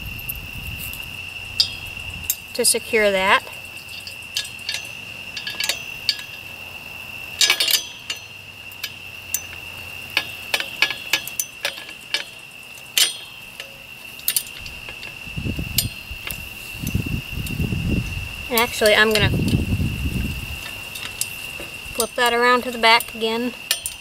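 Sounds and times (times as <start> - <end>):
night insects chirring: 0.0 - 24.0
metal latch pin clicks: 7.4 - 9.5, 10.2 - 15.2, 20.6 - 24.0.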